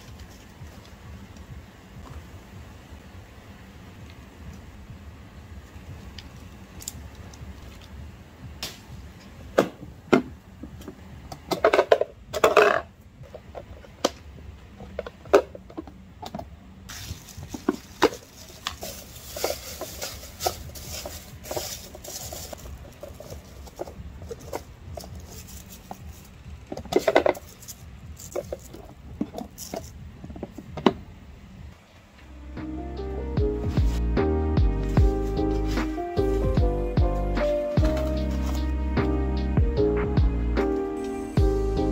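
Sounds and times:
plastic bin liner rustling: 16.9s - 29.9s, 37.4s - 38.7s.

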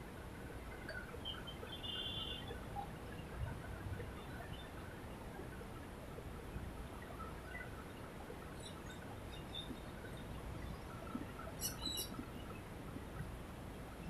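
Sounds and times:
outdoor background noise: 0.0s - 14.0s
bird chirps: 11.6s - 12.2s.

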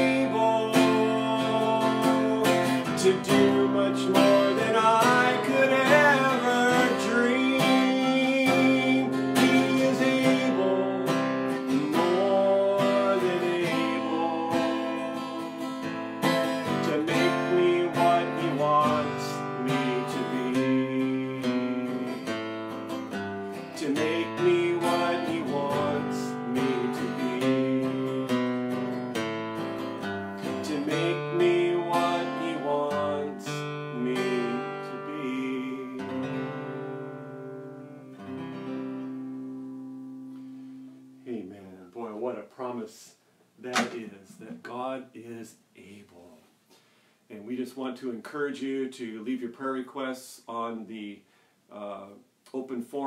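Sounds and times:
man singing: 0.0s - 22.4s, 23.6s - 28.7s, 30.4s - 37.0s, 41.2s - 46.4s, 47.3s - 53.0s
acoustic guitar strumming: 0.0s - 42.3s, 43.6s - 45.0s.

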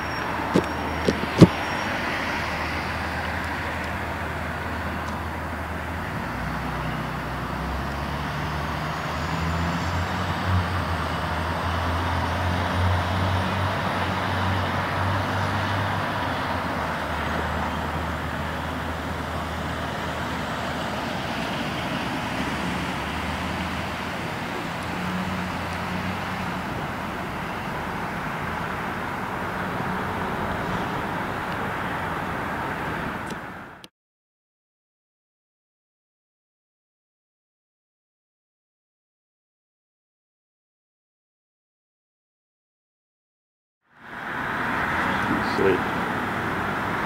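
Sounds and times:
heavy vehicle engine hum: 0.0s - 33.9s, 43.9s - 47.0s
road traffic: 0.0s - 33.9s, 43.8s - 47.0s.

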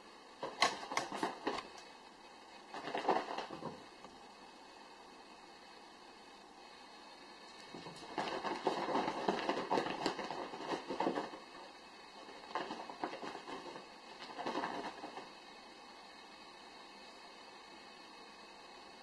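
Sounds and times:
cat claws scratching fabric: 0.4s - 1.7s, 2.7s - 3.8s, 7.7s - 11.5s, 12.2s - 15.3s.

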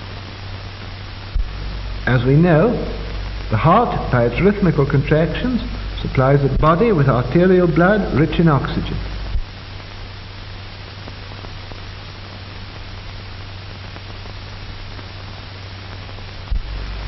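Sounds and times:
low hum: 0.0s - 14.7s
film soundtrack hiss: 0.0s - 17.0s
deep rumble: 1.0s - 9.5s.

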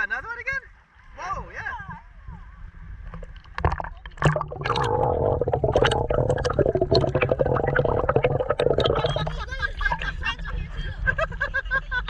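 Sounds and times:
muffled underwater gurgling: 1.9s - 10.0s
water splash: 3.2s - 9.4s.

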